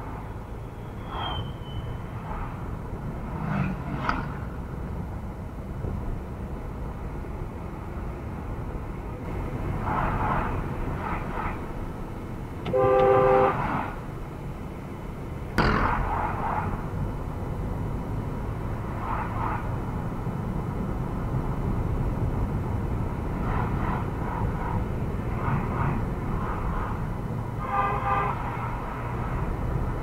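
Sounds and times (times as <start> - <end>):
road and engine rumble in car: 0.0 - 30.0
car horn toot: 12.7 - 13.6, 27.6 - 28.6.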